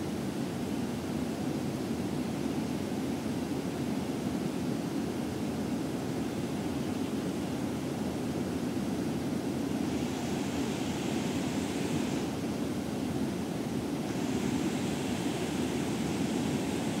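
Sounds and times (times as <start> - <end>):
water rushing over weir: 14.0 - 17.0.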